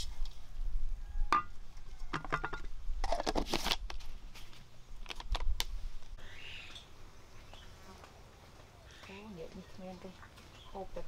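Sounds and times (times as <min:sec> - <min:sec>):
faint insect buzz: 0:06.2 - 0:09.1.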